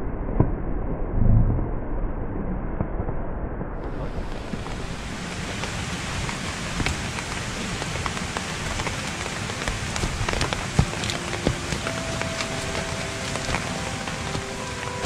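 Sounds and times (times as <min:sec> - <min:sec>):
rain falling: 0:03.8 - 0:15.0
raindrops ticking on a surface: 0:03.8 - 0:15.0.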